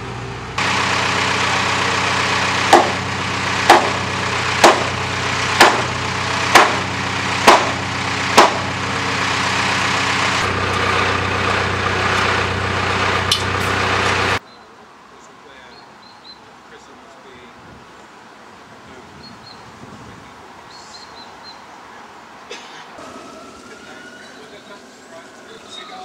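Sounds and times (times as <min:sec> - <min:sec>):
engine-like hum: 0:00.0 - 0:14.4
hammer striking wooden boards: 0:02.7 - 0:03.0, 0:03.7 - 0:04.0, 0:04.6 - 0:05.0, 0:05.6 - 0:05.9, 0:06.5 - 0:07.8, 0:08.4 - 0:08.7.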